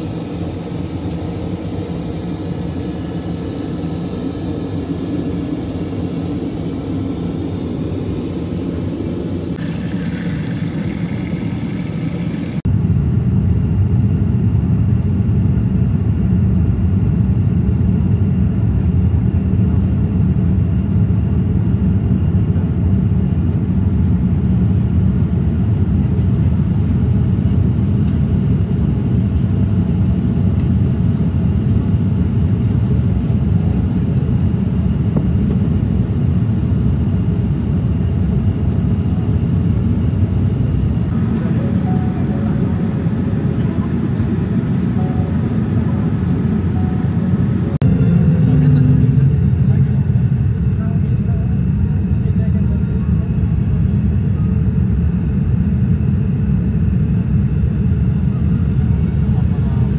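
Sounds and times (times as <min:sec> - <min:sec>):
airplane cabin rumble: 0:00.0 - 0:59.9
tap water running into a cup: 0:09.6 - 0:12.6.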